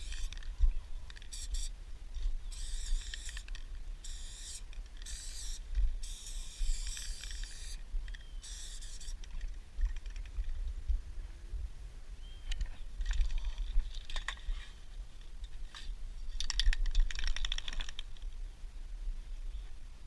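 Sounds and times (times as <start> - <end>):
aerosol spray can hissing: 1.3 - 1.7, 2.5 - 3.4, 4.0 - 7.8, 8.4 - 9.2.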